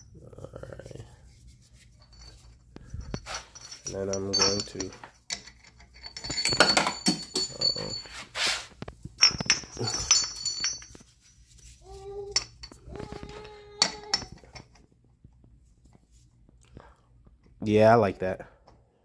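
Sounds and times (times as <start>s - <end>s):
metal pipes clinking: 1.7s - 11.6s, 12.2s - 14.8s.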